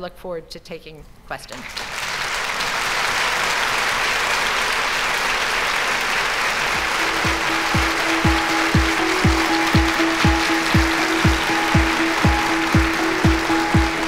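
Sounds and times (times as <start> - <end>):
audience applauding: 1.6 - 14.0
music with steady low beat: 6.8 - 14.0.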